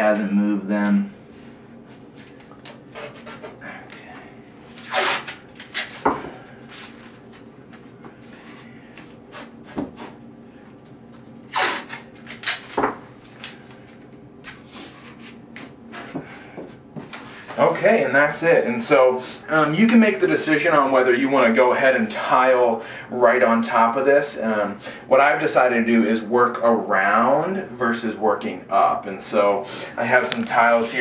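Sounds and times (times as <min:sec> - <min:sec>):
tape rubbing on tiles: 0:02.7 - 0:03.6, 0:04.7 - 0:06.0, 0:09.3 - 0:10.2, 0:11.5 - 0:12.7
masking tape tearing: 0:04.7 - 0:06.1, 0:11.5 - 0:12.8.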